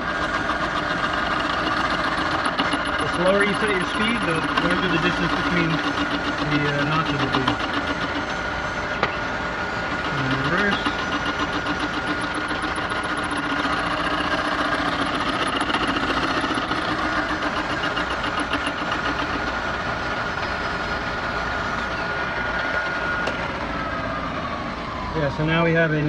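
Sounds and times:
fast ticking from cutter: 0:00.0 - 0:09.2, 0:09.8 - 0:20.6
milling machine running: 0:00.0 - 0:24.1
steady whine: 0:00.0 - 0:26.0.

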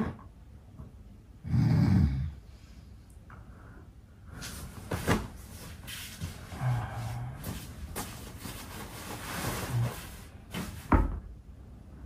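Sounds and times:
bedding rustling and thumping: 0:04.4 - 0:11.3.

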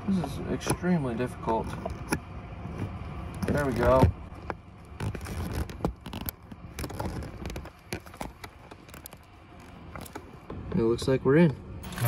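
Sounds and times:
plastic clicks and scrapes: 0:01.4 - 0:10.4.

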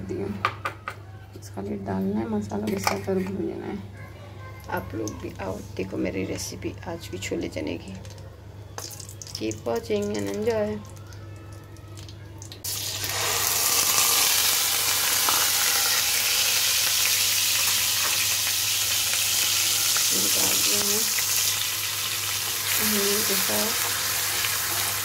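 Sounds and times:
onions sizzling in hot oil: 0:12.6 - 0:25.0.

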